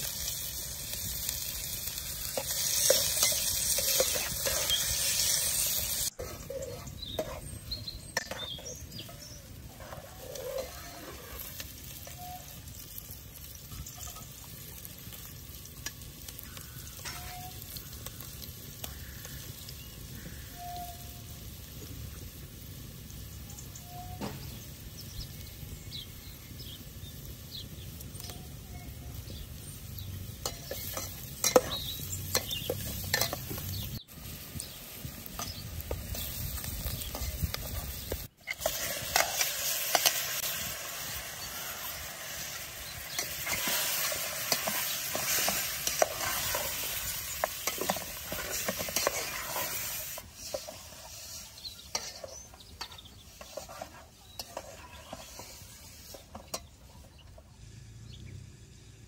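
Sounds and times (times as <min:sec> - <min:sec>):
food sizzling in hot oil: 0:00.0 - 0:57.3
metal ladle clinking and scraping: 0:02.2 - 0:12.4, 0:17.0 - 0:17.6, 0:30.3 - 0:33.9, 0:35.4 - 0:56.9.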